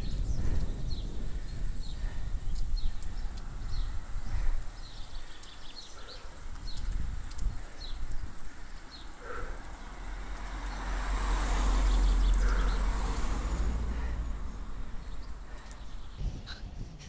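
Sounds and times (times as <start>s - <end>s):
car passing close by: 9.2s - 15.5s
low rumble: 12.4s - 17.0s.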